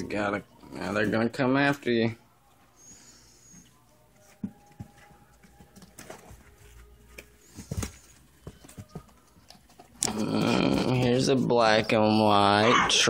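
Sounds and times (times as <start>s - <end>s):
knocks and scuffling: 4.1s - 10.0s.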